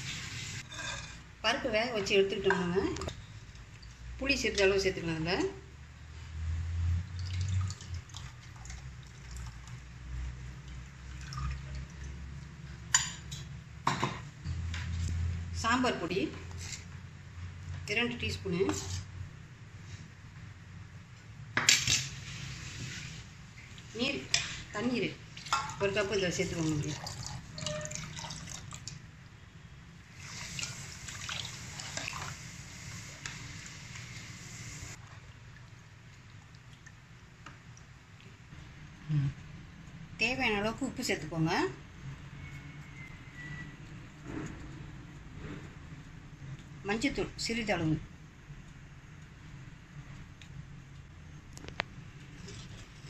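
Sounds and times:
liquid splashing and trickling: 7.0s - 12.6s, 25.2s - 29.1s, 30.1s - 32.4s, 35.0s - 38.4s
water pouring into pot: 7.1s - 9.9s, 10.7s - 12.4s, 26.6s - 29.0s, 30.1s - 35.0s.

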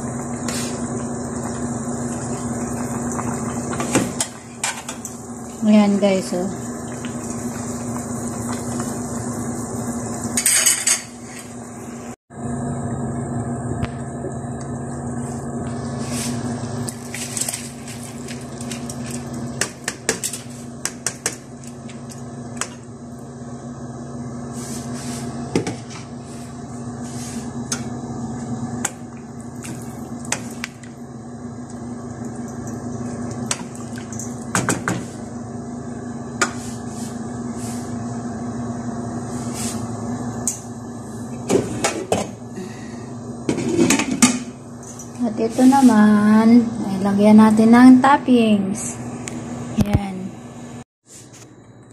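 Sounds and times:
steady low hum: 0.0s - 51.9s
pots and utensils clinking: 10.4s - 11.5s.

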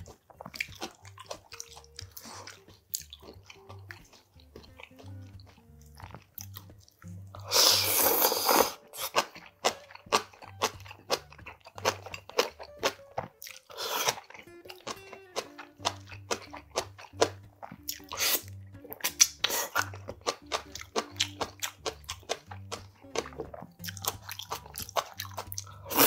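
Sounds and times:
slurps: 0.0s - 9.4s, 13.4s - 14.5s, 15.4s - 26.0s
crunchy chewing and biting: 0.0s - 26.0s.

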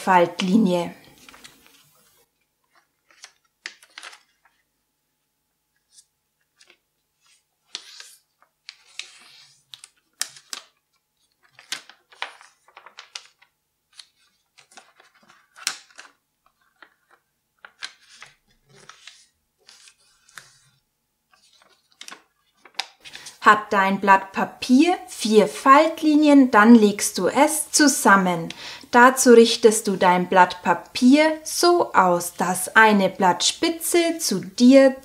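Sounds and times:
paper rustling and crackling: 0.4s - 4.7s, 5.8s - 23.3s.

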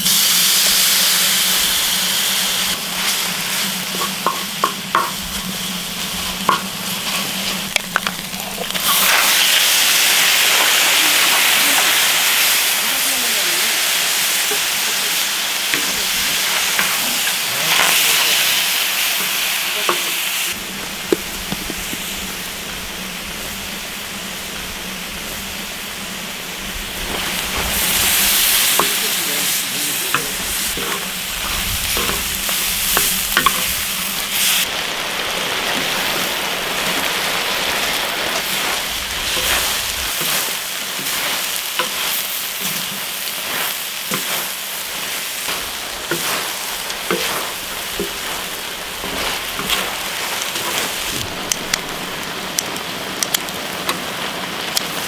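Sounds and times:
food sizzling in a pan: 0.0s - 55.0s
utensil tapping and scraping pan: 3.8s - 5.6s, 6.2s - 9.2s, 15.7s - 17.9s, 28.7s - 29.2s, 30.1s - 34.2s, 39.3s - 44.6s, 45.4s - 51.9s.

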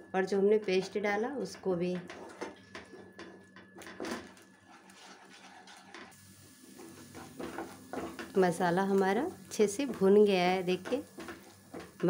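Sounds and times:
wooden spatula scraping frying pan: 2.0s - 8.4s, 9.8s - 12.0s.

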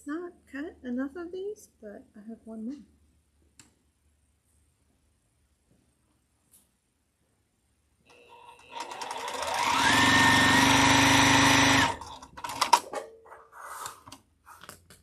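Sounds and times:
sewing machine stitching: 8.1s - 12.9s.

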